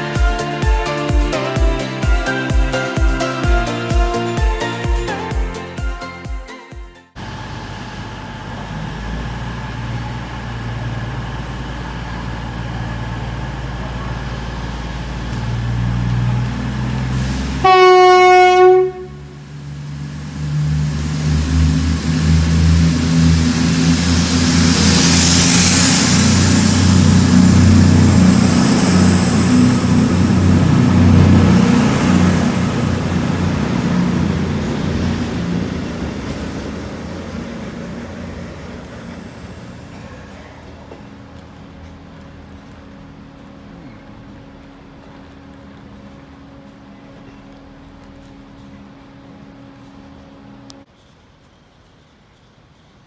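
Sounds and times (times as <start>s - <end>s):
diesel engine rumble: 7.1s - 50.9s
thin high whine: 17.0s - 51.1s
train horn: 17.4s - 19.5s.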